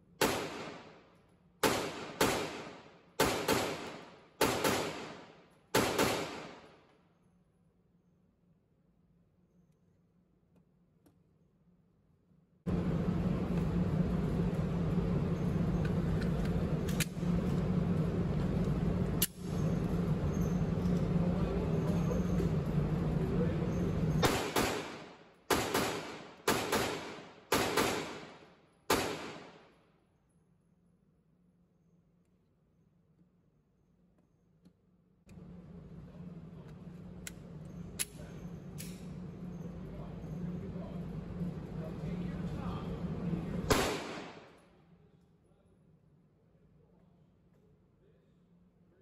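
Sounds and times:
ventilation hum: 0.0 - 9.7, 10.4 - 49.0
gunshots: 0.2 - 1.0, 1.6 - 6.8, 24.2 - 29.7, 43.7 - 44.6
pistol handling clicks and rustles: 36.7 - 39.2.

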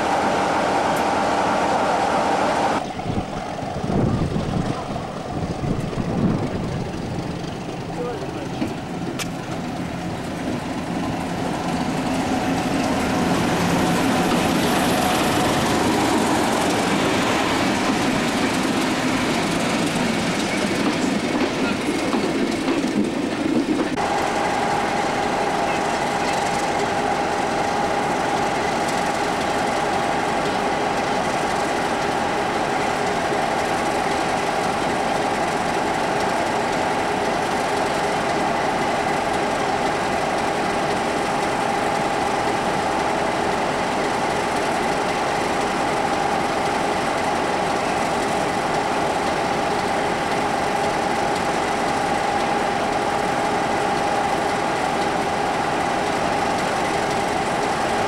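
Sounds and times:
diesel locomotive idling: 0.0 - 58.0
steady high whine: 23.9 - 35.5.

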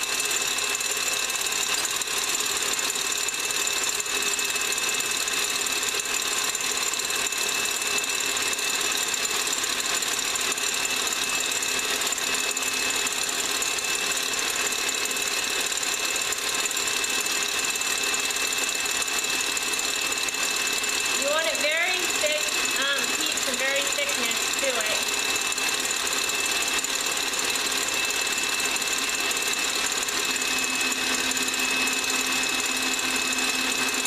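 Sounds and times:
stand mixer whirring with high whine: 0.0 - 34.0.

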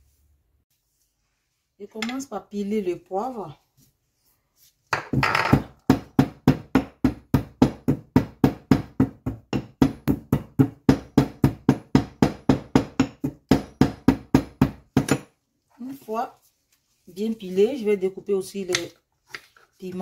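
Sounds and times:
pestle knocking in ceramic mortar: 4.9 - 15.4.

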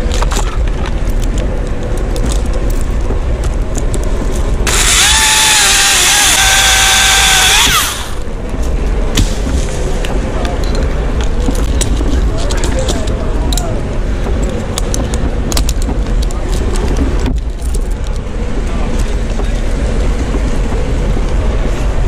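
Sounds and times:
chainsaw cutting wood: 4.6 - 8.2.

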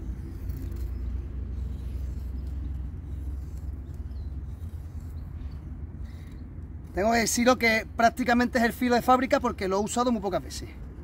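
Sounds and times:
knife scraping wood: 0.0 - 7.8
steady low rumble: 0.0 - 11.0.

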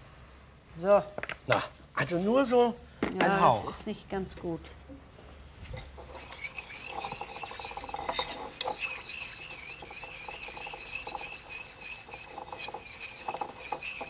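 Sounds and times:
spatula scraping frying pan: 5.6 - 14.0.

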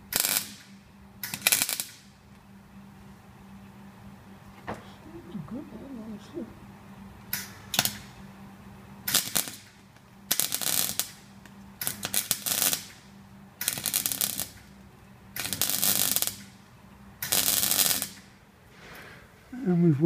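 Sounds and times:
welder arc crackling: 0.0 - 2.4, 7.2 - 8.2, 9.0 - 18.4.

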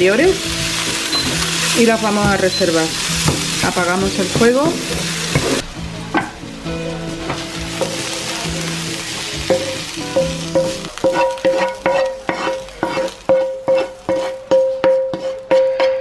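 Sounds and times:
vegetables sizzling: 0.0 - 15.8
plucked string music: 0.4 - 13.4
wooden spoon scraping a pan: 10.5 - 16.0.

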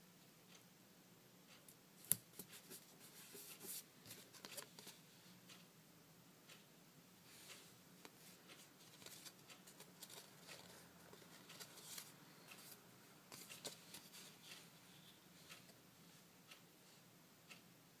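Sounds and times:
paper card rustling and clicking: 2.1 - 5.0, 8.5 - 14.6.

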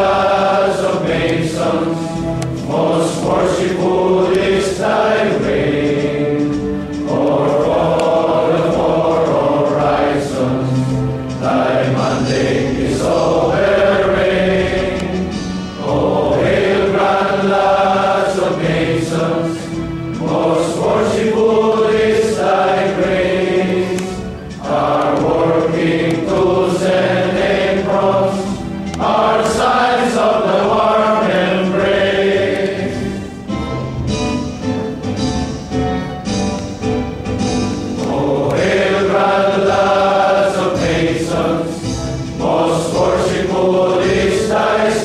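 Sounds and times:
male choir singing a march: 0.0 - 34.2, 37.4 - 45.0.

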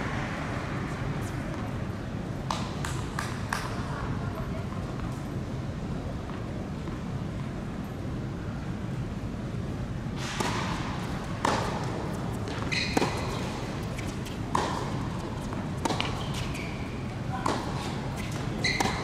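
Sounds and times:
low hall hum: 0.0 - 19.0
racket hitting tennis ball: 2.4 - 3.7, 10.2 - 19.0
shoes squeaking on court: 10.2 - 19.0
ball bouncing: 11.4 - 16.7, 17.3 - 19.0.

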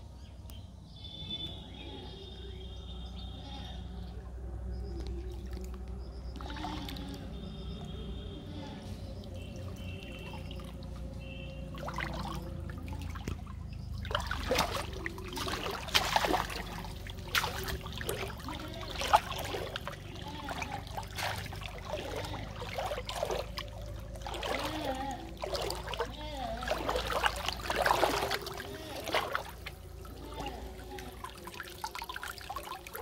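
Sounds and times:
water splashing and trickling: 2.9 - 33.0
short sharp splashes: 6.3 - 8.5, 9.1 - 33.0.

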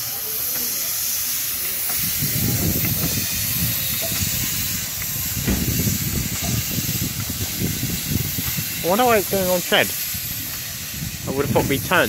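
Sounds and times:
steam locomotive hissing steam: 0.0 - 12.0.

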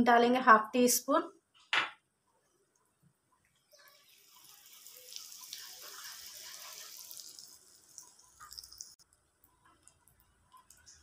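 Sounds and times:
hot oil sizzling: 3.7 - 11.0.

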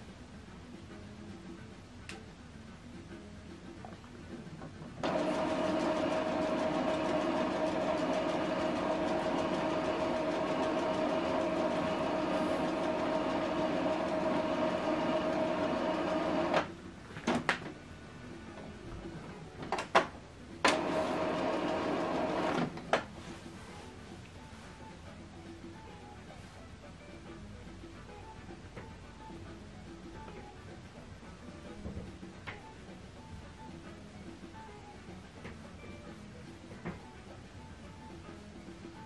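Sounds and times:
printer mechanism whining: 5.0 - 16.7, 20.6 - 22.8.

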